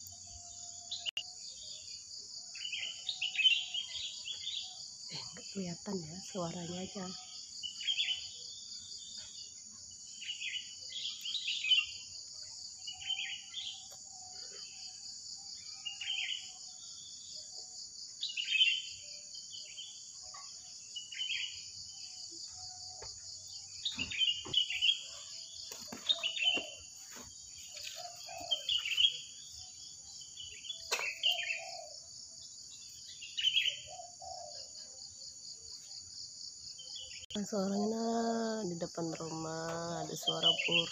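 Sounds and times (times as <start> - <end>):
insects droning: 0.0 - 40.9
birds chirping: 21.0 - 34.8.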